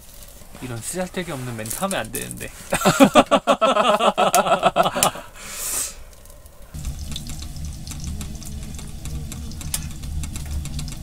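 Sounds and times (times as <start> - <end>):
fire burning with crackles: 0.0 - 11.0
man laughing: 2.7 - 5.4
brief hiss: 5.4 - 6.1.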